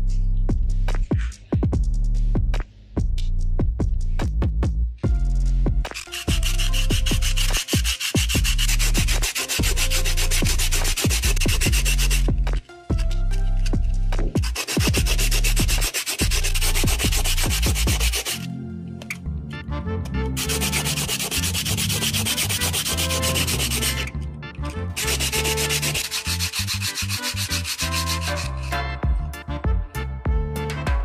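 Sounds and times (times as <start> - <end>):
harsh rasping sanding: 5.9 - 18.5, 20.4 - 24.1, 25.0 - 28.8.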